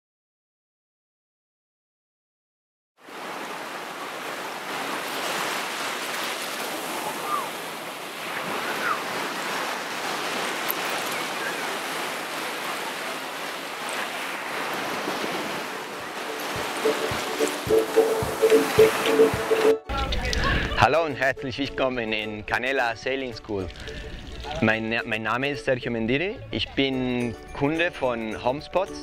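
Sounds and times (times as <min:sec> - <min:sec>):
small waves washing on beach: 0:03.0 - 0:19.8
music: 0:16.1 - 0:29.0.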